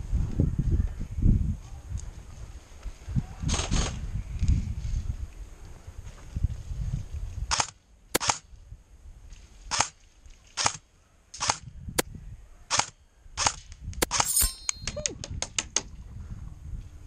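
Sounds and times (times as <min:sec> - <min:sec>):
airsoft rifle shots: 0:07.6 - 0:08.4.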